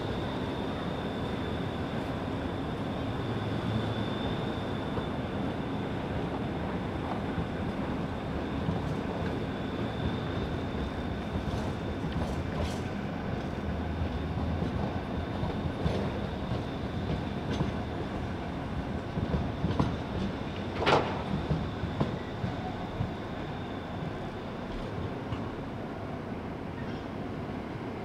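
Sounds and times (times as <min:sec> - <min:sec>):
tram rumbling on track: 0:00.0 - 0:28.0
wheels clicking over rail joints: 0:19.7 - 0:22.2.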